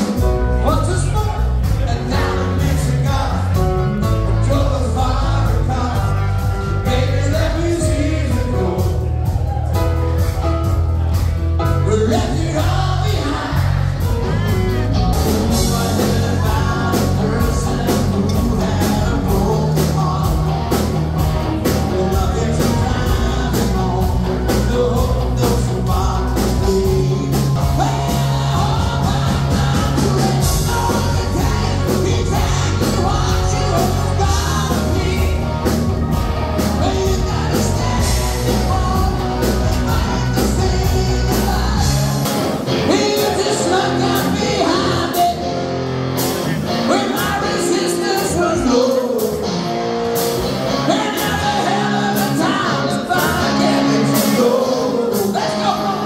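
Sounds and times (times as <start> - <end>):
live band playing: 0.0 - 56.0
person singing: 11.6 - 45.6, 46.4 - 49.8, 50.7 - 56.0.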